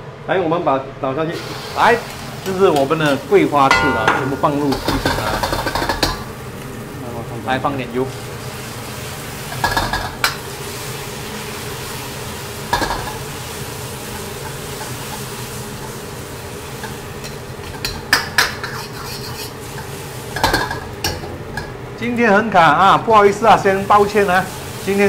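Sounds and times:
egg and vegetables sizzling in wok: 0:01.4 - 0:22.0, 0:23.5 - 0:25.0
metal spoon scraping wok: 0:18.6 - 0:19.9.

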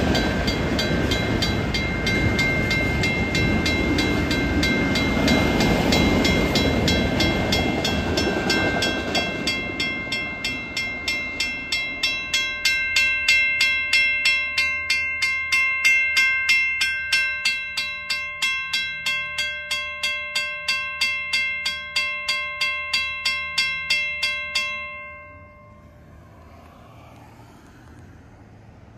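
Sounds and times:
crossing signal bell ringing: 0:00.0 - 0:26.4
faint traffic noise: 0:24.8 - 0:28.9.

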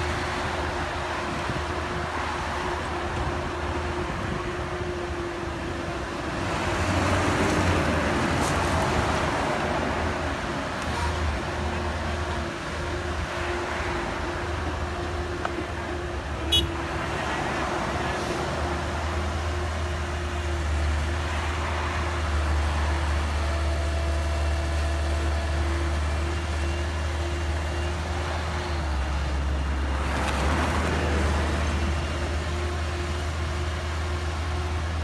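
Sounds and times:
excavator diesel engine running: 0:00.0 - 0:35.0.

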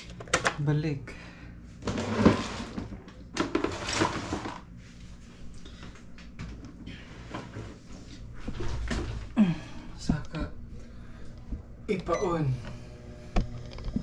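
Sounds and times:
steady low hum: 0:00.0 - 0:03.4, 0:04.6 - 0:14.0.

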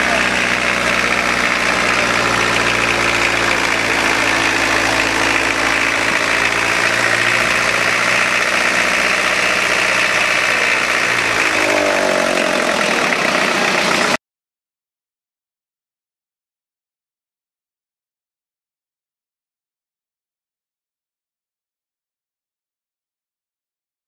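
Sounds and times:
engine running loudly: 0:00.0 - 0:14.2.

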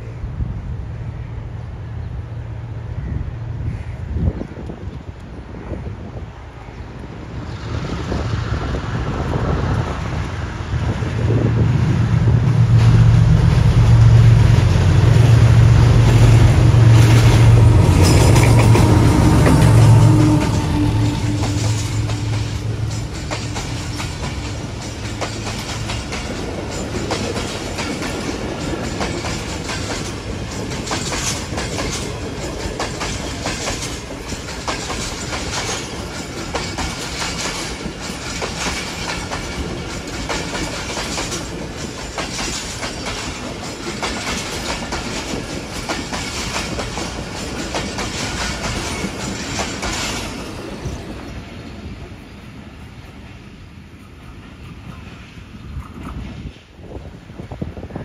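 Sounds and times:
train wheels clattering over rail joints: 0:12.4 - 0:51.9.

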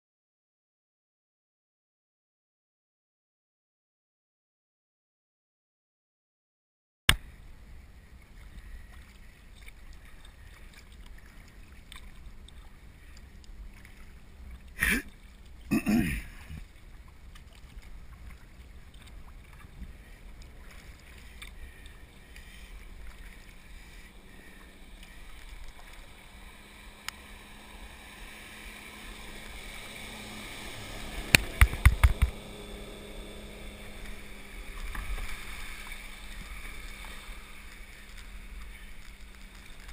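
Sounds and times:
water washing along kayak hull: 0:07.2 - 0:39.9
paddle strokes: 0:08.0 - 0:39.9
waves thumping hull: 0:08.2 - 0:39.9.

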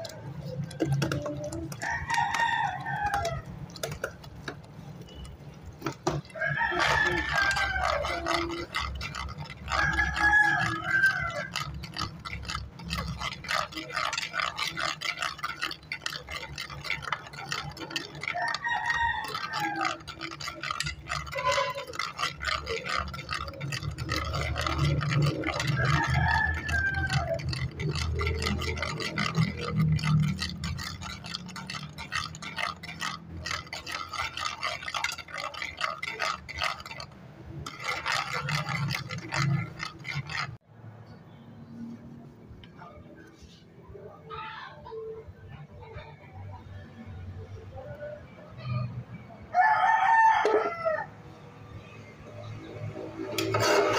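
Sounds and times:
spoon scraping metal pot: 0:00.0 - 0:40.6, 0:52.6 - 0:53.9.

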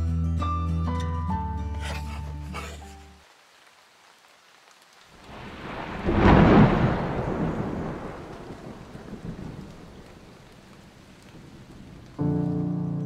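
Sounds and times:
thunder rumbling: 0:05.2 - 0:12.6.

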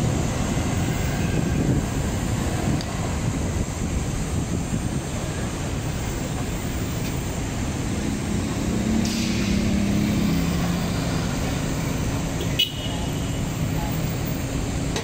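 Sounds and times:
city street traffic: 0:00.0 - 0:15.0
vehicle engine passing: 0:07.6 - 0:12.4.

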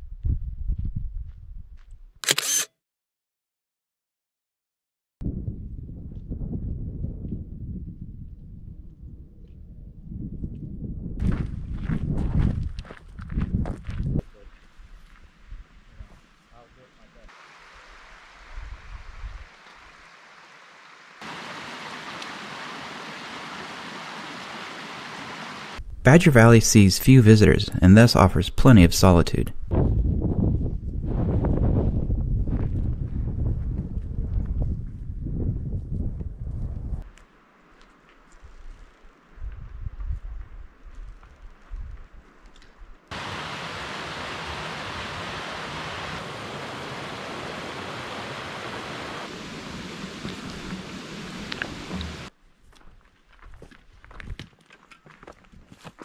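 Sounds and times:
faint hiss: 0:16.0 - 0:28.1
creek rushing over rocks: 0:17.3 - 0:25.8, 0:43.1 - 0:52.3.

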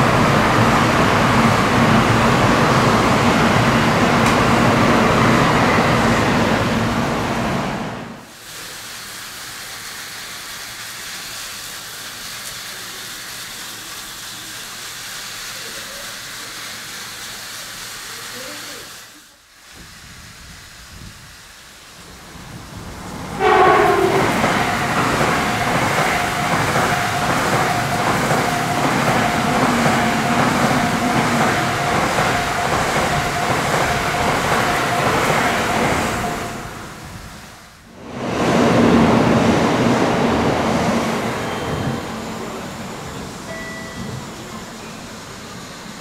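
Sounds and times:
train passing at speed: 0:00.0 - 0:18.9, 0:19.7 - 0:46.0.

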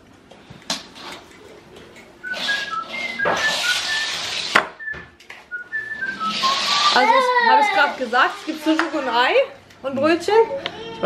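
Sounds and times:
person whistling a tune: 0:02.2 - 0:04.2, 0:04.8 - 0:06.5.

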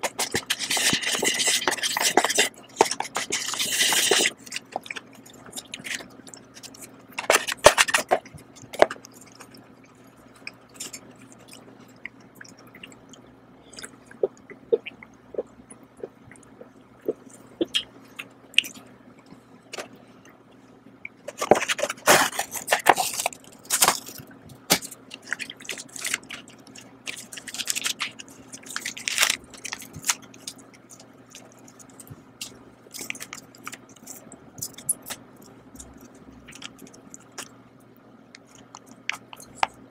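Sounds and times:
paper packaging rustling: 0:00.0 - 0:04.9, 0:21.3 - 0:30.5
chewing and mouth noises: 0:00.0 - 0:39.8.

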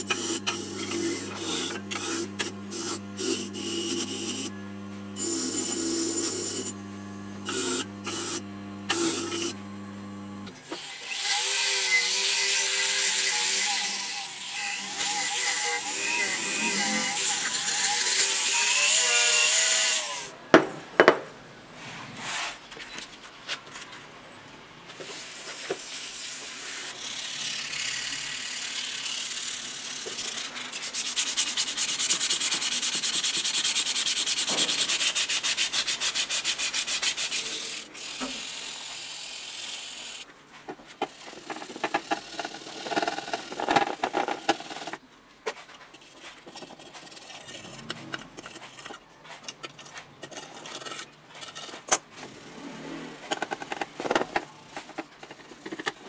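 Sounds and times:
sandpaper rubbing on metal: 0:00.0 - 0:04.5, 0:25.0 - 0:40.2
machine whine: 0:00.0 - 0:10.5, 0:14.8 - 0:18.2
scraping on plastic: 0:40.4 - 0:56.0.

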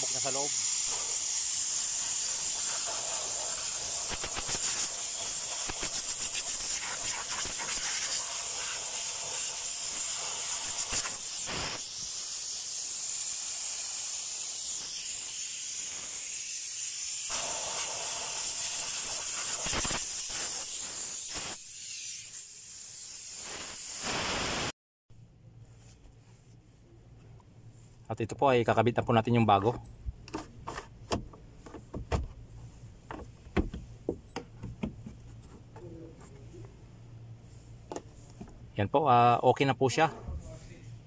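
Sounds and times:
compressed air hissing: 0:00.0 - 0:24.7.

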